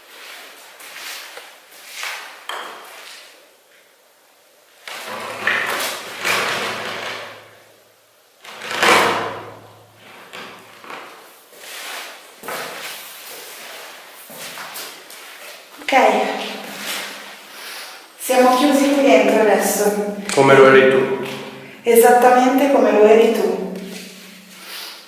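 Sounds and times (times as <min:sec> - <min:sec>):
heavy metal door scraping shut: 0:04.9 - 0:07.6, 0:08.5 - 0:10.7.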